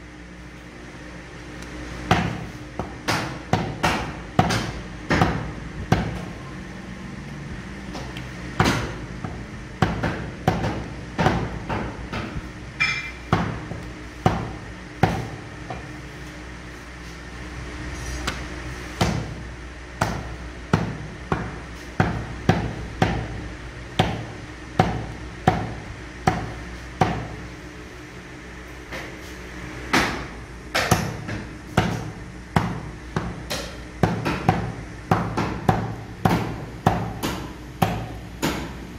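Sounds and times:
meat cleaver chopping on wood: 2.1s - 6.2s, 24.0s - 27.4s, 30.8s - 38.8s.

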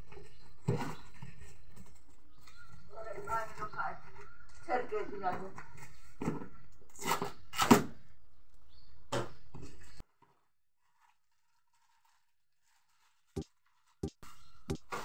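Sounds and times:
packing tape and cardboard tearing: 6.9s - 8.0s.

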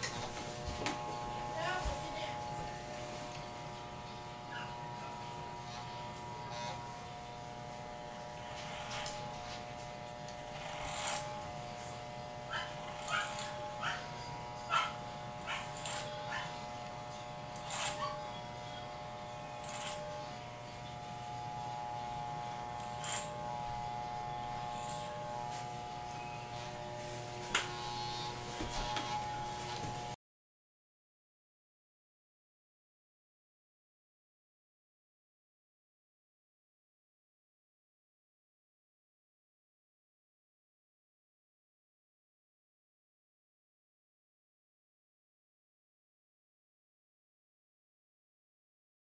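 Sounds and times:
clipper blades rasping through hair: 0.0s - 30.2s
electric hair clippers buzzing: 0.0s - 30.2s.

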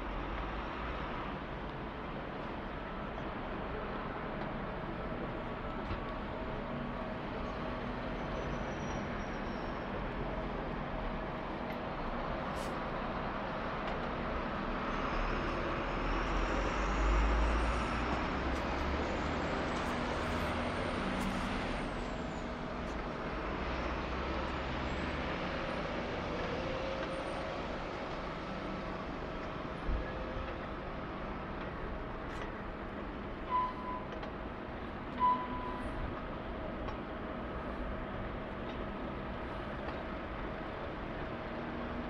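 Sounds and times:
traffic rumble: 0.0s - 42.0s
faint high squeals: 8.2s - 9.9s, 33.5s - 34.1s.

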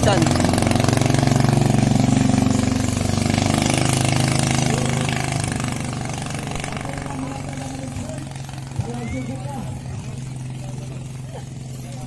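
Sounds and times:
motorboat engine running: 0.0s - 12.0s.

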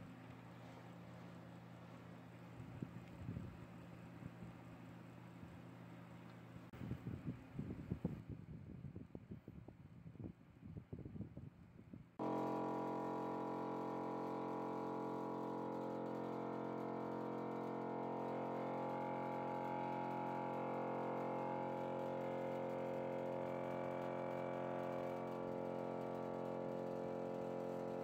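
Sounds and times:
buzzing hum: 12.2s - 28.0s.

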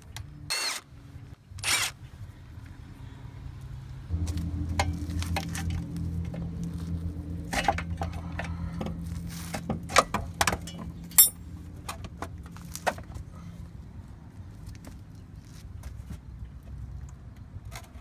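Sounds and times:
low steady hum: 3.9s - 12.7s
metal clinks and knocks: 9.6s - 11.4s.

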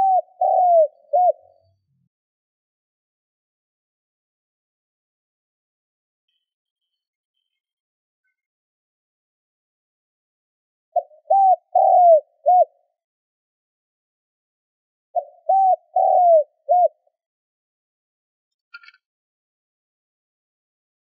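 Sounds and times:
dove cooing: 0.0s - 1.6s, 11.0s - 12.8s, 15.2s - 17.1s.

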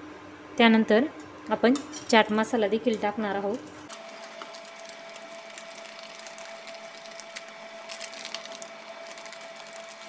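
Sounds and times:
thick mash bubbles popping: 3.9s - 10.0s.

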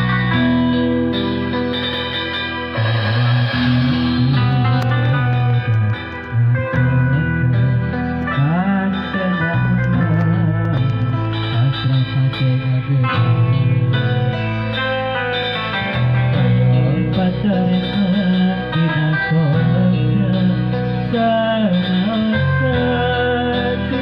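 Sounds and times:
guitar-led backing track: 0.0s - 24.0s
man singing into microphone: 2.8s - 7.6s, 8.2s - 14.3s, 16.2s - 24.0s.

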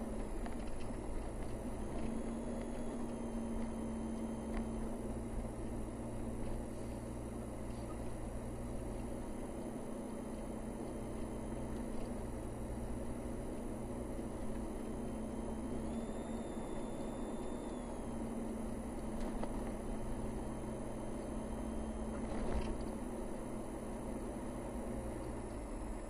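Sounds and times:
vehicle engine hum: 0.0s - 26.0s.

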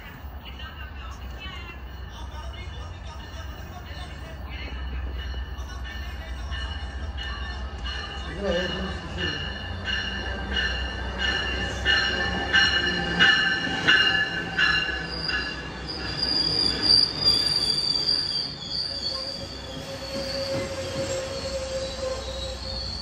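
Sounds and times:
train coaches rolling: 0.0s - 23.0s
bell ringing: 5.2s - 16.2s
wheels squealing: 12.7s - 23.0s.

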